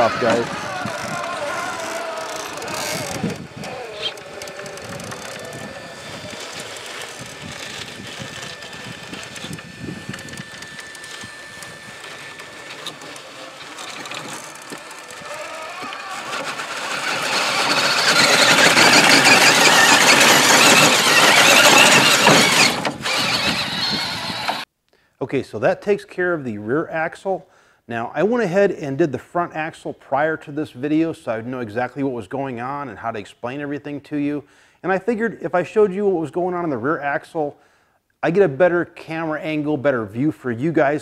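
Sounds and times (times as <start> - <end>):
electric toy car motor whining: 0.0 - 24.7.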